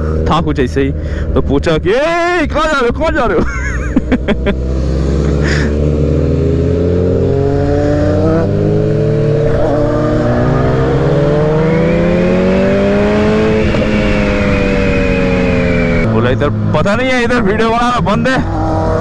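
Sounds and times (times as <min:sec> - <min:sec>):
motorcycle engine accelerating: 0:03.5 - 0:19.0
wind rushing: 0:07.1 - 0:16.2.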